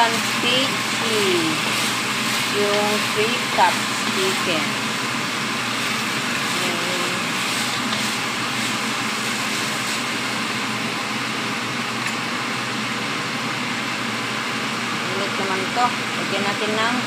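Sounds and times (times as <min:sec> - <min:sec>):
food sizzling in frying pan: 0:00.0 - 0:13.0.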